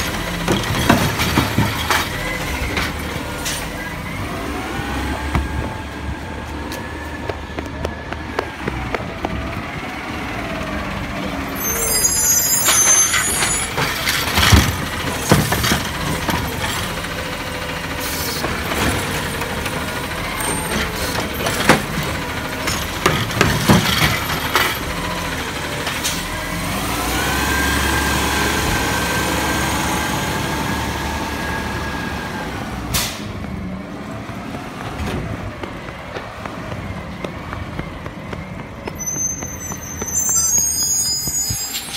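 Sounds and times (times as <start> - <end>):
cart banging: 0.0 - 3.7, 12.6 - 17.2, 18.4 - 25.1
garbage truck engine revving: 12.8 - 38.9.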